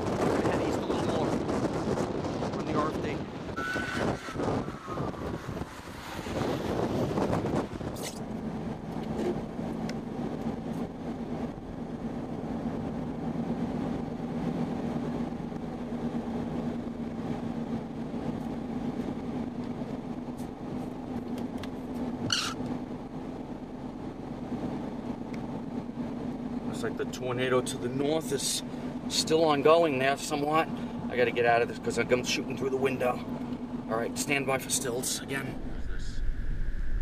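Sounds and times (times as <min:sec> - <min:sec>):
car engine idling: 0:08.2 - 0:37.0.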